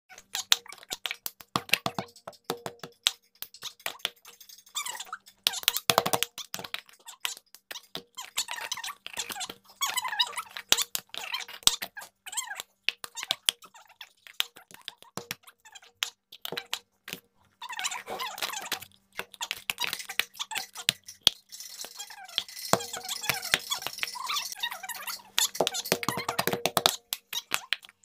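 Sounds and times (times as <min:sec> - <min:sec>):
squeaky sped-up voices: 0:00.1 - 0:02.2, 0:03.1 - 0:16.9, 0:17.5 - 0:28.0
plastic cups tapped on table: 0:01.3 - 0:03.1, 0:05.9 - 0:06.8, 0:22.4 - 0:24.6, 0:25.2 - 0:27.2
rapid hand claps: 0:25.4 - 0:27.3.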